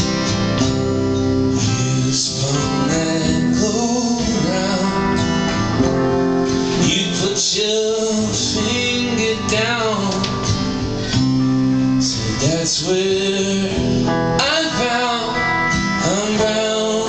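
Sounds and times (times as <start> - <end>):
acoustic guitars strummed and picked: 0.0 - 17.0
man singing: 1.5 - 5.6, 6.7 - 10.6, 11.8 - 17.0.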